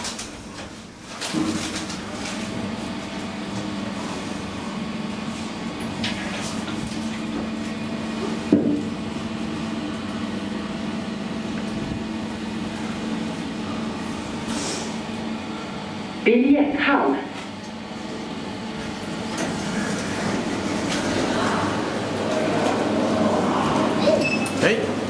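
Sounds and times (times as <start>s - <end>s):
elevator car humming: 1.6s - 25.0s
elevator doors sliding open: 18.7s - 25.0s.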